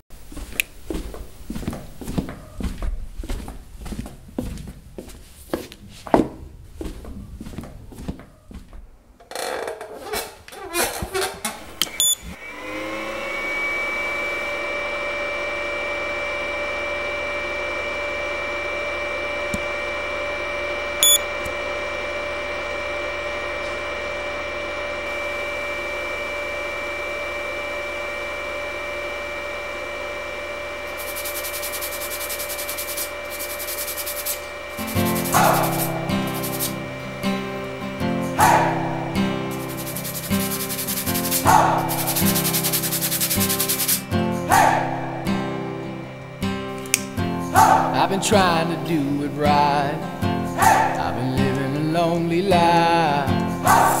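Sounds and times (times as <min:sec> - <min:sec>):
small motor whine: 0:11.6 - 0:47.9
short electronic beep: 0:12.0 - 0:12.3, 0:21.0 - 0:21.3.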